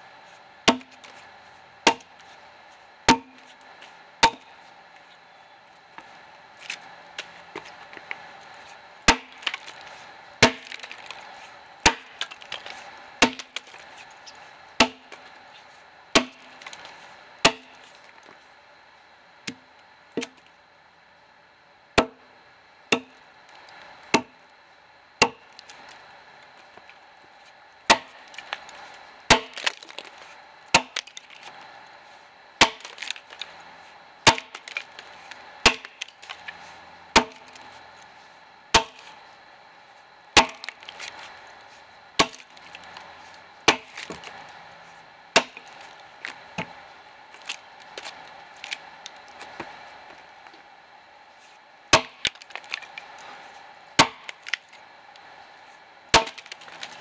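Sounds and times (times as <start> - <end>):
axe chopping a log: 0.7 - 1.2, 1.8 - 2.2, 3.1 - 3.5, 4.2 - 4.5, 9.1 - 9.8, 10.4 - 11.2, 11.8 - 13.9, 14.8 - 15.2, 16.2 - 17.8, 22.0 - 22.2, 22.9 - 23.2, 24.1 - 24.4, 25.2 - 25.4, 27.9 - 28.6, 29.3 - 31.4, 32.6 - 33.4, 34.2 - 34.9, 35.6 - 36.4, 37.2 - 37.5, 38.7 - 39.0, 40.4 - 41.1, 42.2 - 42.6, 43.7 - 44.2, 45.4 - 45.8, 51.9 - 52.9, 54.0 - 54.6, 56.1 - 57.0.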